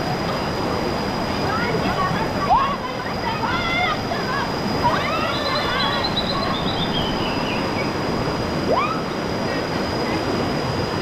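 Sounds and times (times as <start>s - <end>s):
river water rushing through rapids: 0.0s - 11.0s
people whooping and screaming: 3.6s - 7.7s, 8.6s - 9.4s.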